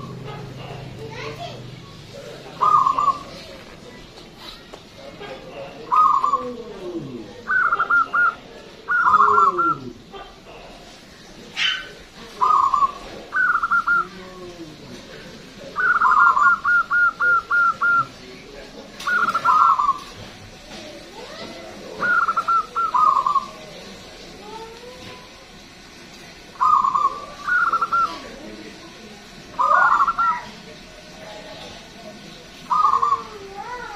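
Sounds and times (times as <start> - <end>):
dove cooing: 0.0 - 3.9, 5.0 - 18.3, 19.0 - 24.2, 26.5 - 28.7, 29.5 - 30.6, 32.6 - 33.9
faint low bird calls: 1.8 - 14.8, 15.6 - 18.2, 19.0 - 20.2, 21.9 - 23.9, 26.5 - 28.4, 29.5 - 30.6, 32.6 - 33.7.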